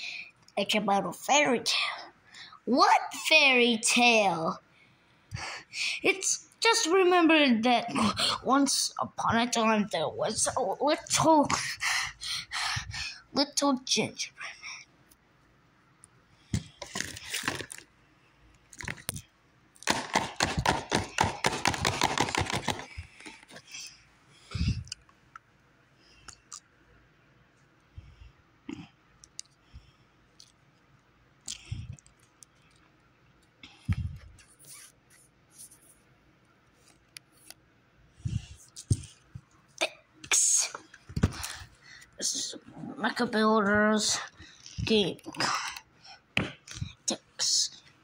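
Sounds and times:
plastic wrapping crinkling: 16.8 - 17.9.

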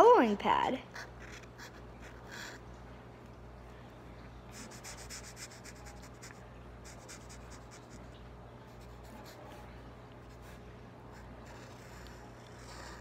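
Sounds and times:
marker scratching on paper: 4.5 - 8.1, 10.3 - 13.0.

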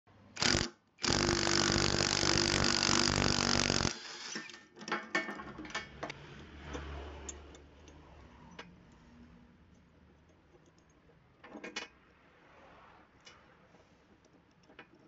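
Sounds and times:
impact wrench hammering: 0.4 - 4.4.

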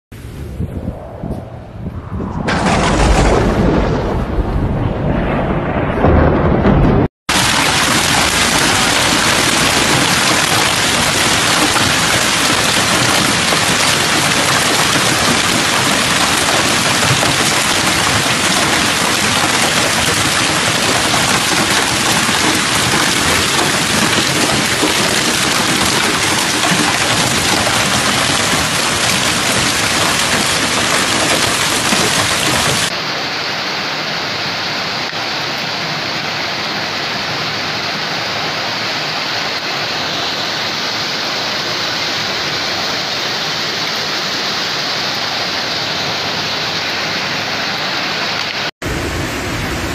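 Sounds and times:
hail and rain pelting: 2.5 - 4.3, 6.0 - 33.0.

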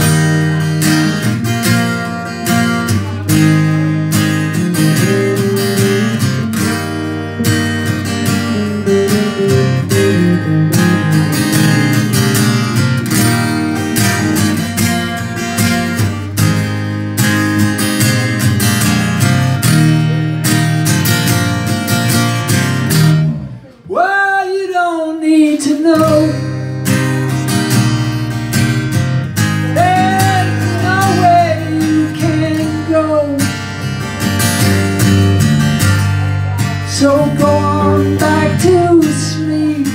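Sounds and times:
acoustic guitars strumming: 0.0 - 39.9
person singing: 23.5 - 26.6, 29.6 - 33.7, 36.0 - 39.9.

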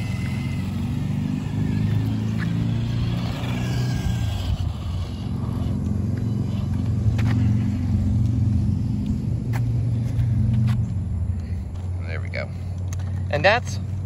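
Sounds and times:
toy truck electric motor hum: 0.0 - 7.0.

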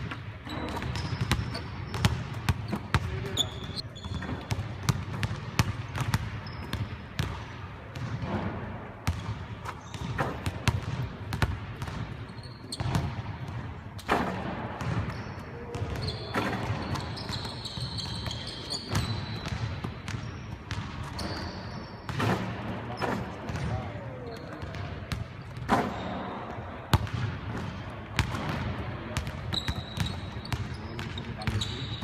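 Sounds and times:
ball striking rim and backboard: 0.0 - 12.2, 12.8 - 23.8, 26.9 - 31.7
basketballs bouncing on hardwood: 0.0 - 12.2
players' voices: 22.2 - 26.9.

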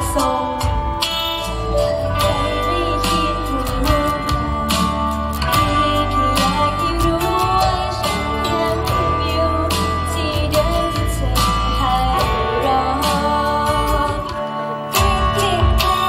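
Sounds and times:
pop backing track: 0.0 - 16.0
woman singing into microphone: 0.0 - 16.0.

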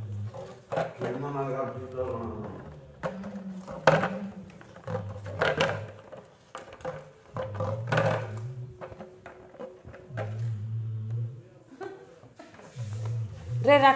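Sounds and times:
plastic bottle knocking and crinkling: 0.0 - 10.7
low hum: 9.9 - 11.6.

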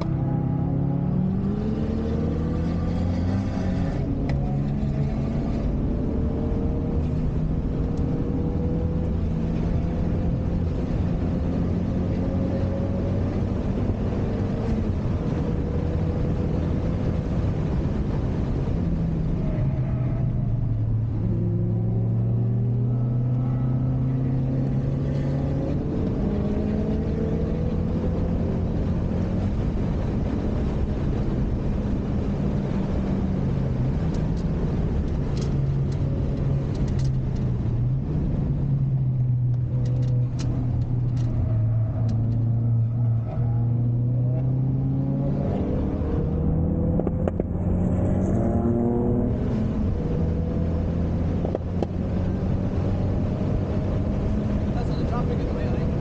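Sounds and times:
car engine revving through gears: 0.0 - 56.0
road and wind noise: 0.0 - 56.0.

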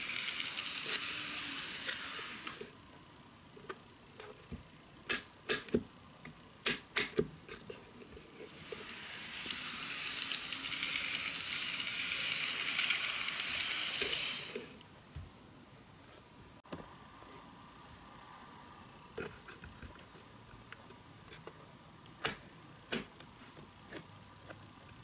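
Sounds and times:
model train running on track: 0.0 - 2.6, 8.8 - 14.4.

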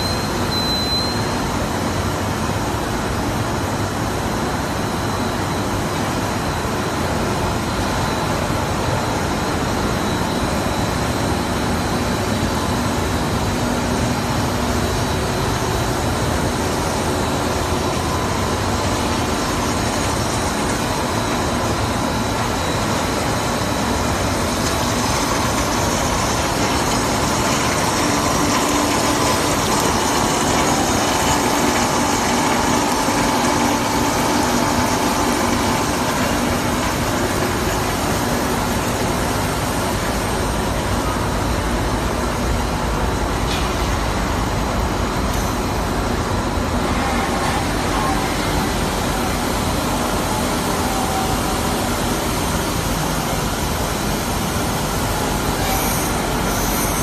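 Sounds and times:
loud machine noise: 0.0 - 57.0.

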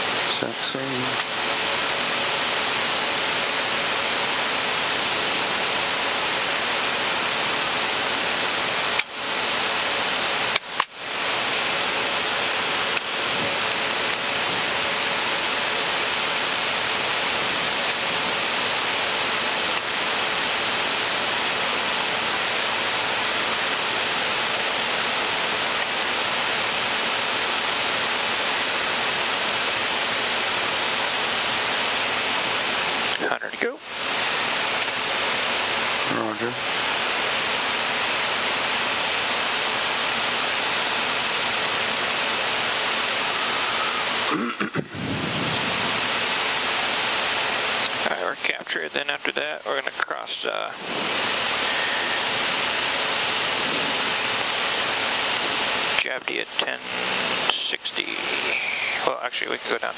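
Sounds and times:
air rushing in jet cockpit: 0.0 - 48.5, 49.7 - 59.9
faint steady hum: 0.0 - 59.9.

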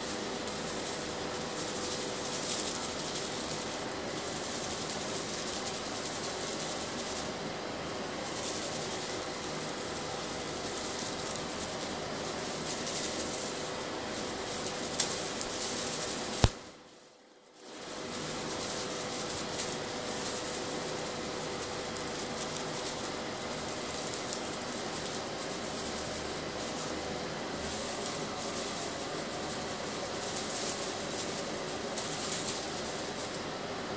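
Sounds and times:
background hiss: 0.0 - 33.9
sharp click: 16.4 - 16.6.

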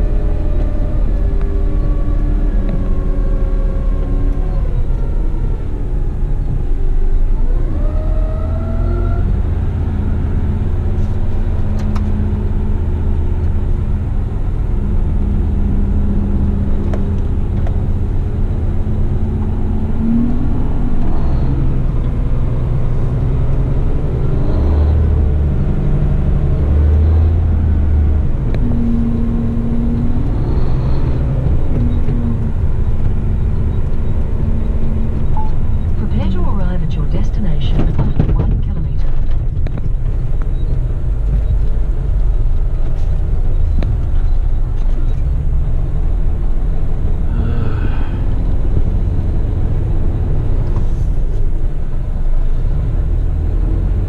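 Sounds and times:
truck diesel engine running: 0.0 - 54.0.

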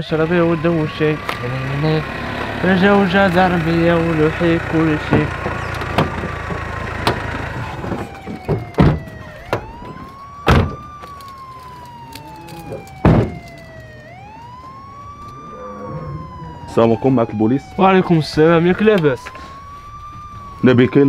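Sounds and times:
police siren wailing: 0.0 - 21.0
car doors shutting: 5.0 - 11.0.

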